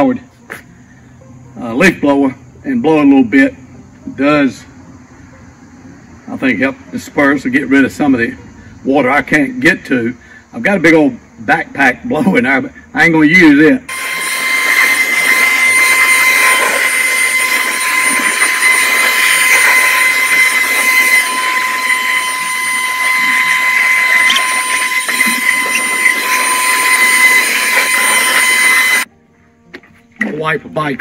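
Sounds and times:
leaf blower whining: 0:13.9 - 0:29.1.

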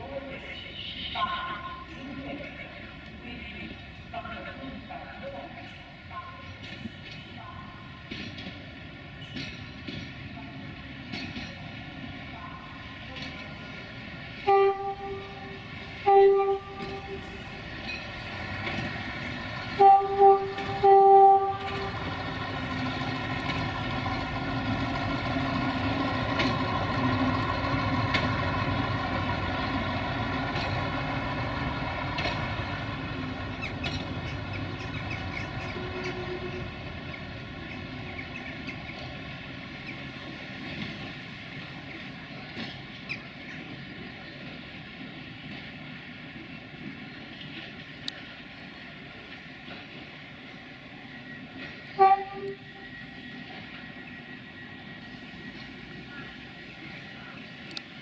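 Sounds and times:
engine and wheels on rails: 0:00.0 - 0:58.0
rail vehicle horn toots: 0:00.6 - 0:01.8, 0:14.4 - 0:17.4, 0:19.7 - 0:22.1, 0:35.6 - 0:36.8, 0:51.9 - 0:52.9.

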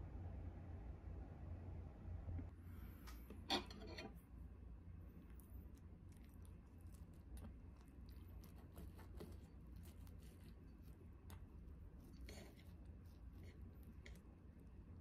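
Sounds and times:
knife and fork scraping plate: 0:03.4 - 0:04.2.

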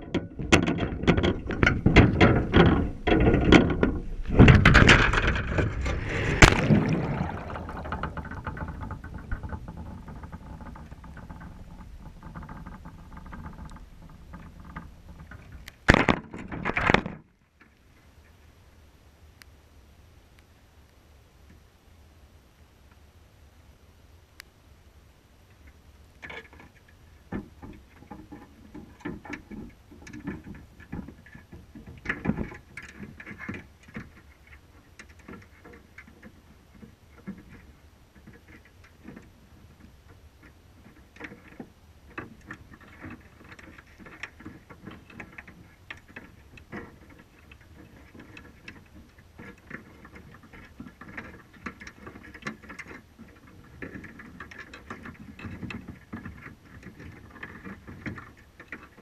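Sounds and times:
underwater clicks taps and scrapes: 0:00.0 - 0:17.8.

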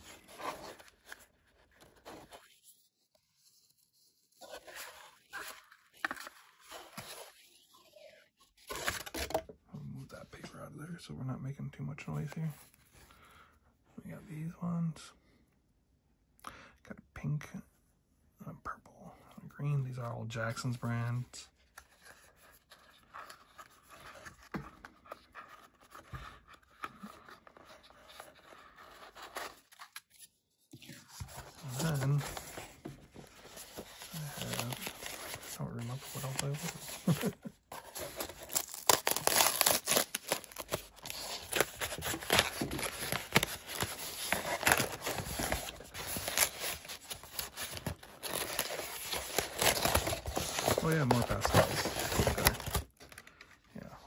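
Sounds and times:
cardboard box scraping and rustling: 0:31.0 - 0:52.8.

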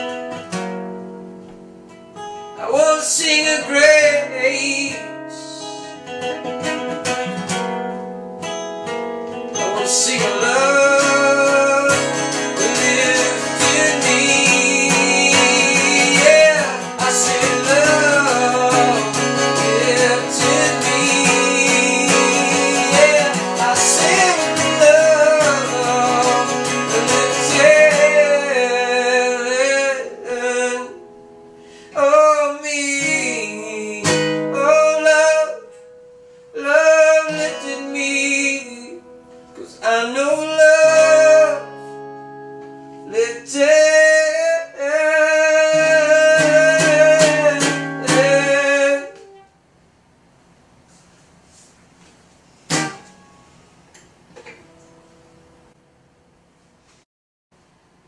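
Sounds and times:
acoustic guitar strumming: 0:00.0 - 0:49.6, 0:50.2 - 0:57.0
person singing: 0:02.6 - 0:05.9, 0:09.6 - 0:31.1, 0:31.9 - 0:35.8, 0:36.6 - 0:41.8, 0:43.0 - 0:49.4.

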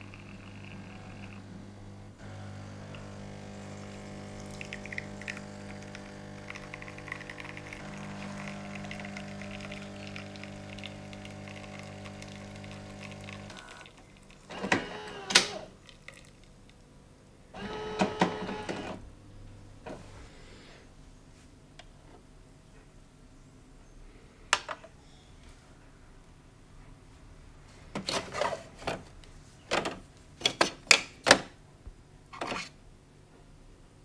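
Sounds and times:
espresso machine pump humming: 0:00.0 - 0:15.7, 0:17.6 - 0:19.0
coffee running into cup: 0:00.1 - 0:01.4, 0:02.2 - 0:16.4.

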